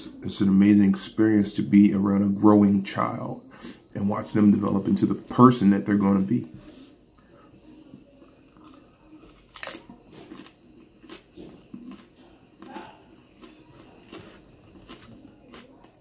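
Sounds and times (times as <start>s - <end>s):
person crunching and chewing taco: 8.2s - 16.0s.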